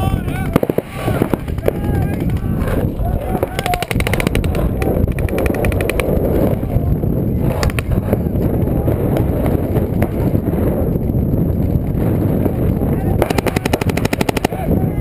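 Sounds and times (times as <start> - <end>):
wind rumble on microphone: 0.0 - 15.0
paintball markers firing: 0.5 - 6.7, 7.5 - 8.1, 13.2 - 14.7.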